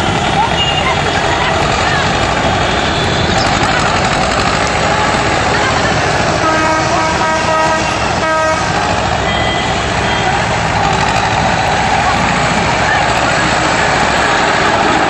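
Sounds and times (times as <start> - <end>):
tractor engine running: 0.0 - 15.0
horn sounding: 4.7 - 14.4.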